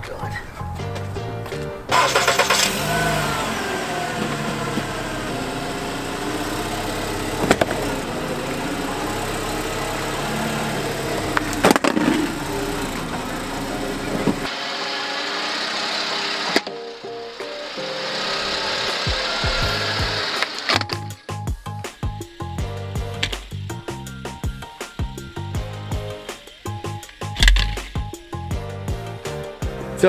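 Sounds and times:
car engine running: 1.9s - 14.5s, 22.2s - 28.3s
steady hiss: 21.6s - 28.5s.

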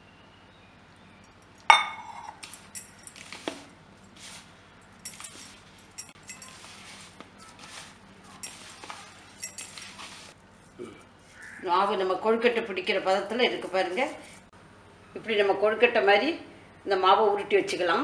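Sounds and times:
spoon clinking against bowl: 1.7s - 3.0s, 5.0s - 6.7s, 8.4s - 9.9s
hand mixing dough in plastic bowl: 5.3s - 10.8s.

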